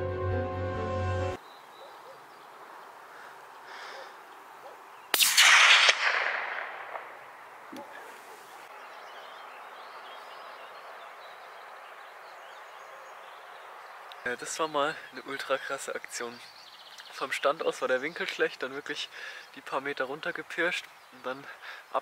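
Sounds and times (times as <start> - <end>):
faint open-air background: 0.0 - 6.1, 6.8 - 22.0
rifle shot with echo: 5.1 - 7.4.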